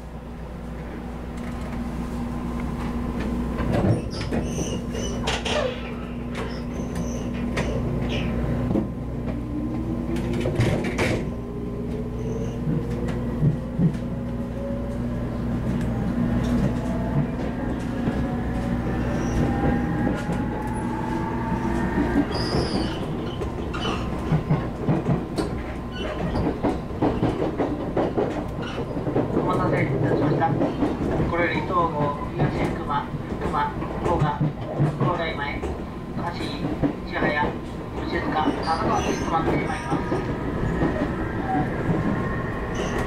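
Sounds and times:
train hum under floor: 0:00.0 - 0:43.0
electric train whine rising: 0:14.5 - 0:23.4.

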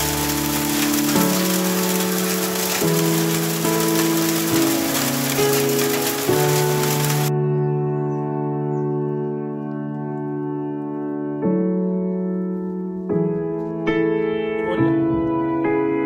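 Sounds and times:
rain hiss: 0:00.0 - 0:07.3
slow keyboard chords: 0:00.0 - 0:16.0.

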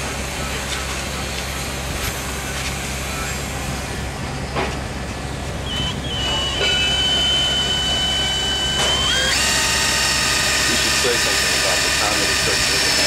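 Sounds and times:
cordless drill whining: 0:05.6 - 0:13.0.

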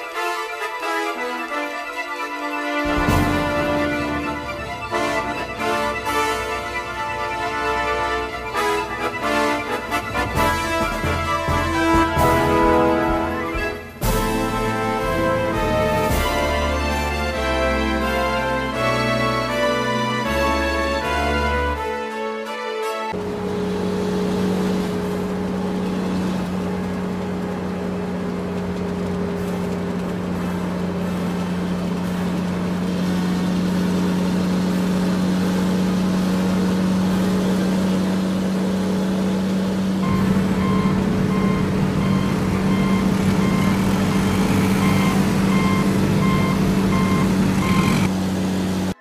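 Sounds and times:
truck engine hum: 0:00.0 - 0:49.0
reversing beep: 0:40.0 - 0:48.1.

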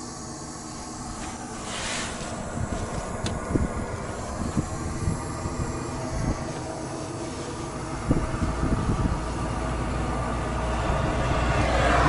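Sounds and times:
gas hissing from a leak: 0:00.0 - 0:09.6
steady low hum: 0:00.0 - 0:12.0.

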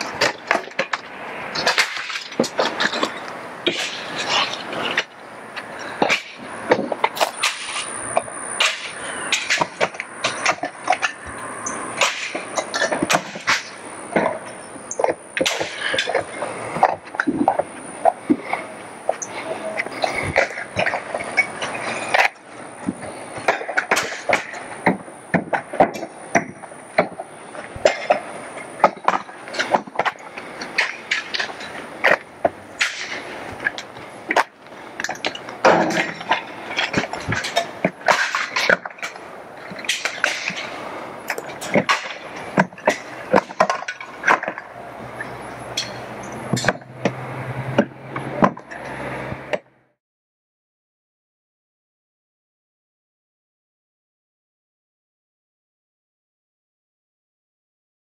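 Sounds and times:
siding shingles shattering: 0:00.0 - 0:05.2, 0:05.8 - 0:18.4, 0:19.8 - 0:44.7.

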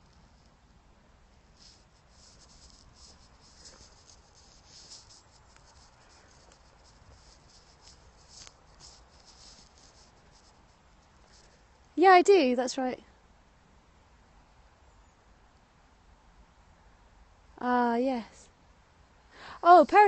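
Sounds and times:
faint rustling and scratching: 0:00.0 - 0:13.0, 0:19.4 - 0:20.0.

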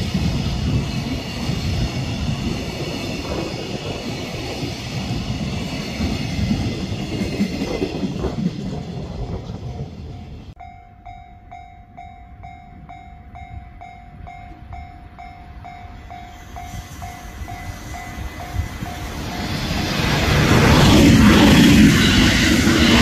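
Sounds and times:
freight train rumbling past: 0:00.0 - 0:23.0
level crossing warning bell: 0:10.1 - 0:19.8.

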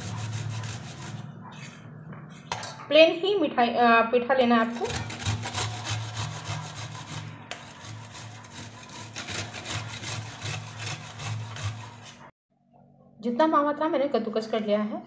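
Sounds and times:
food rasping on a metal grater: 0:00.0 - 0:01.7, 0:04.6 - 0:12.3.

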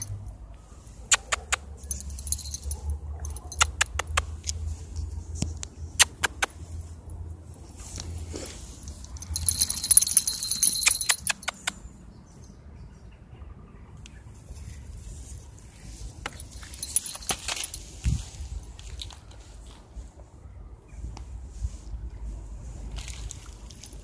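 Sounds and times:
dog collar bell jingling: 0:00.0 - 0:00.2, 0:01.8 - 0:04.0, 0:08.9 - 0:11.7, 0:16.3 - 0:17.9.

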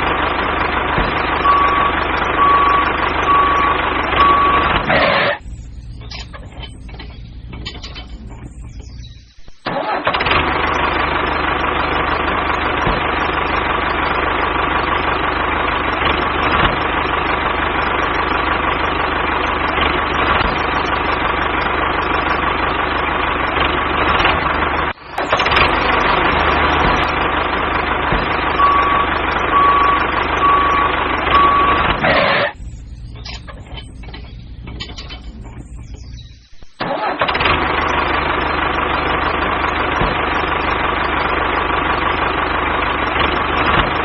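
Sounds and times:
heavy vehicle engine running: 0:00.0 - 0:44.0
reversing beeps: 0:01.4 - 0:09.7, 0:28.5 - 0:36.8.

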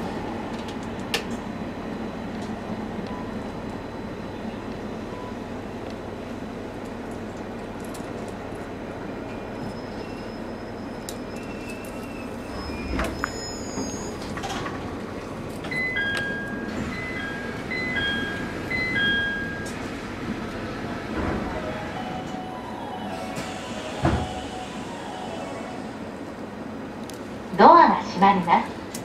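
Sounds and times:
electric train humming: 0:11.1 - 0:29.0.

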